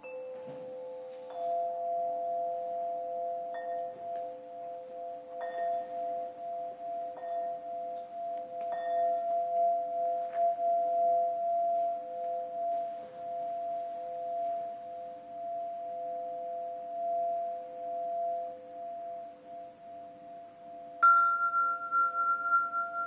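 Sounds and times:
glass rods struck with mallets: 0.0 - 12.7, 21.0 - 23.0.

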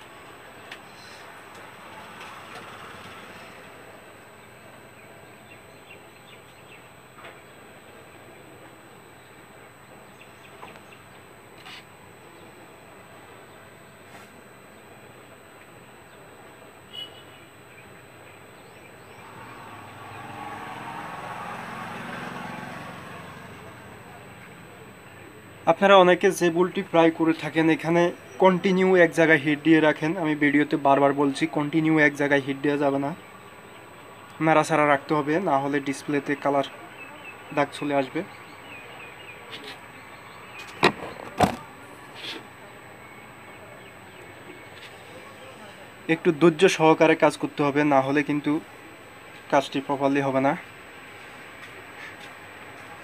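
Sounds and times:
sharp knocks: 40.7 - 41.7.

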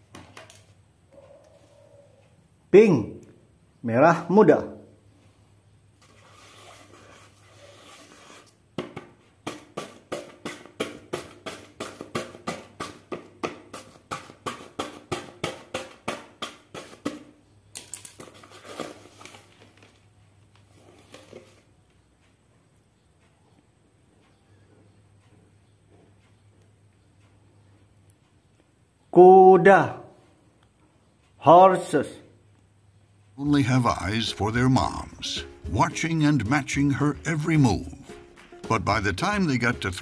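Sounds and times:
paper being scratched by hand: 6.0 - 8.6
paper scraping: 6.0 - 8.6
paper rustling: 18.2 - 20.1.

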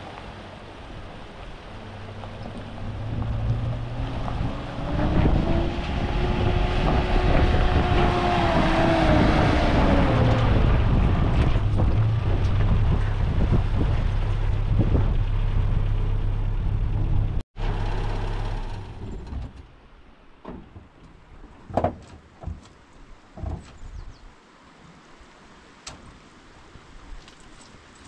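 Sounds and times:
vehicle engine hum: 0.0 - 21.7
road noise: 0.0 - 28.0.

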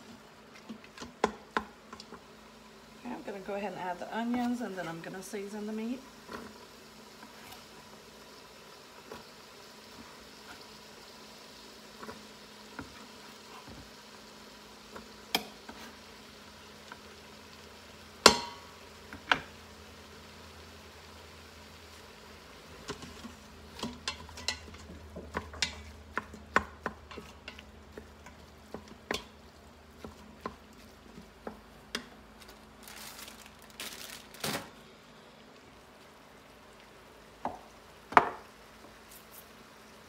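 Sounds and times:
spatula scraping and tapping pot: 22.8 - 29.4, 30.0 - 32.1.

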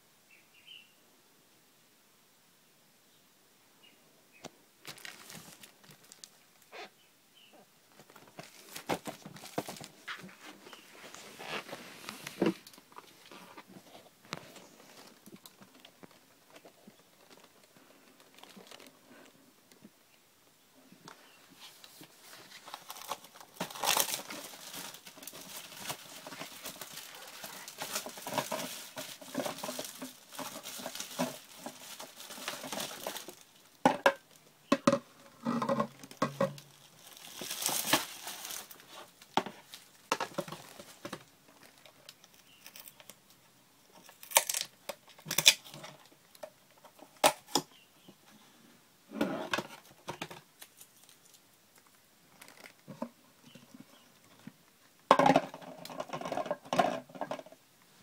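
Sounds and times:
handling plastic parts: 4.8 - 6.4, 7.9 - 19.9, 21.1 - 47.8, 49.4 - 57.6
plastic film crinkling and tearing: 4.8 - 6.7, 7.9 - 13.6, 14.3 - 19.3, 21.9 - 34.4, 35.6 - 43.2, 44.0 - 47.6, 49.7 - 51.4.

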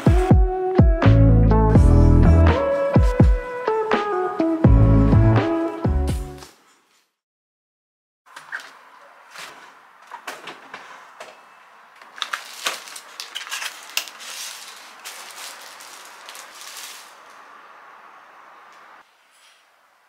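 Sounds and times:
plastic bags crinkling: 12.0 - 17.4.

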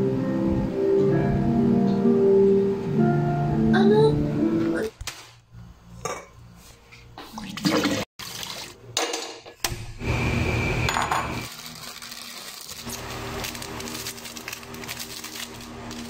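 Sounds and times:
water sloshing and pouring: 7.2 - 8.8.

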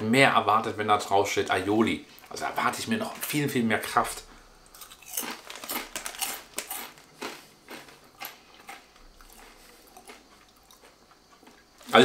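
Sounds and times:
chip bag crinkling: 4.7 - 12.0.

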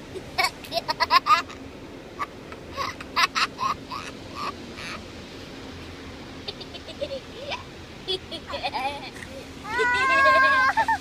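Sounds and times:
steady low hum: 0.0 - 11.0
children squealing and giggling: 7.0 - 11.0.

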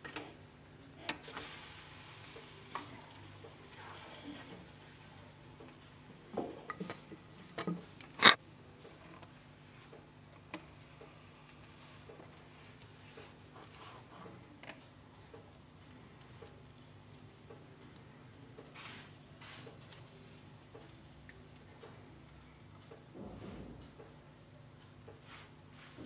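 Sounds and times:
flatbread sizzling on griddle: 1.2 - 6.4, 18.6 - 21.2.

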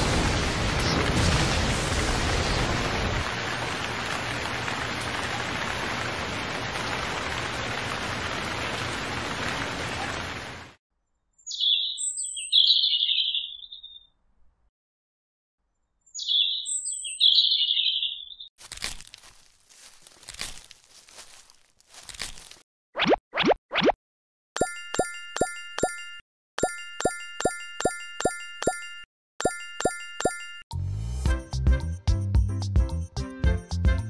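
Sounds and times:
rain falling on sand: 0.0 - 10.8
bird chirping: 11.0 - 14.2, 15.7 - 18.5.

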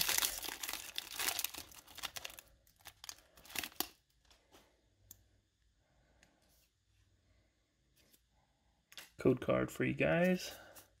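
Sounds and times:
foil wrapper crinkling: 0.0 - 4.0.

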